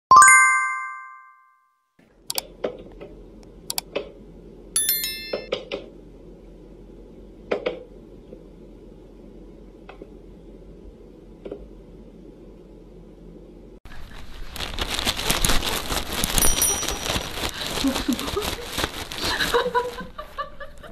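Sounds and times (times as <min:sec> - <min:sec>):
bright chime: 0:00.1 - 0:01.5, 0:04.8 - 0:05.5.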